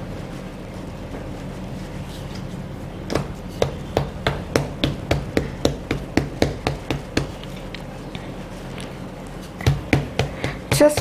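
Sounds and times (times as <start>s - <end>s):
rolling pin pounding dough: 3.0s - 8.2s, 9.5s - 11.0s.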